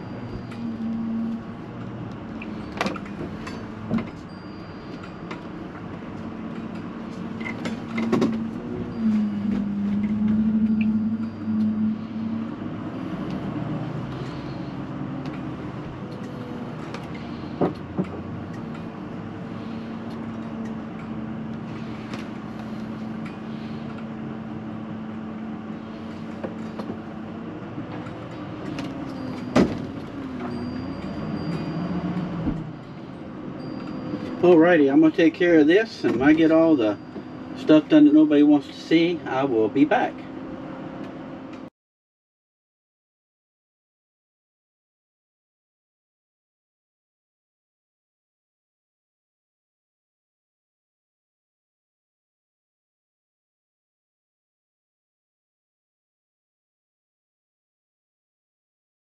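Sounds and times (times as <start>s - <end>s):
motorhome engine running: 0.0s - 41.7s.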